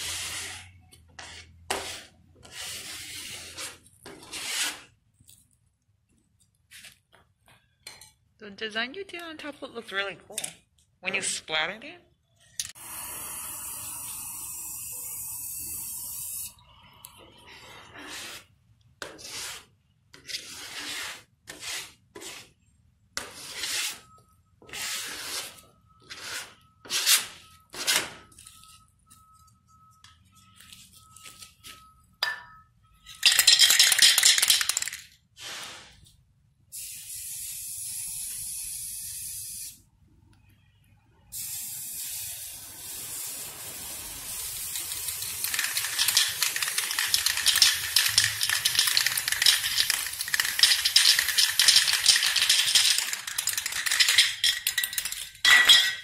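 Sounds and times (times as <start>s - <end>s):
spray-paint can hissing: 36.7s - 39.8s, 41.3s - 54.2s.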